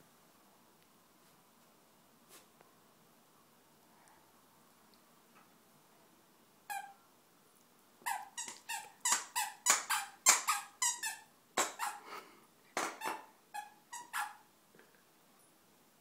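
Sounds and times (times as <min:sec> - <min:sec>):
dog toy squeaking: 0:06.7 - 0:07.0, 0:08.1 - 0:12.0, 0:12.8 - 0:14.4.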